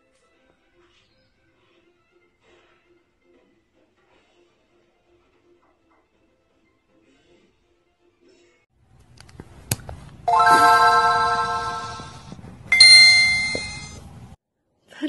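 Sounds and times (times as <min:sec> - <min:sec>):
ringing chime tones: 0:10.3 - 0:14.0.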